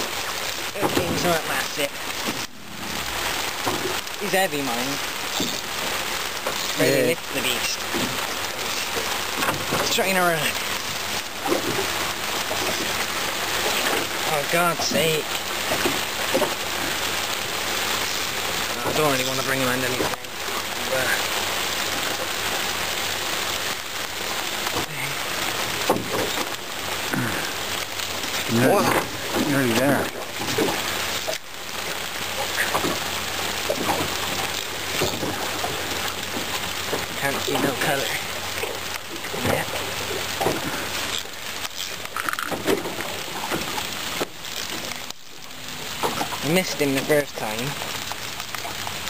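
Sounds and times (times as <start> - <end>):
heavy rain on water: 0.0 - 49.0
fishing rod and reel rattling: 41.0 - 42.9.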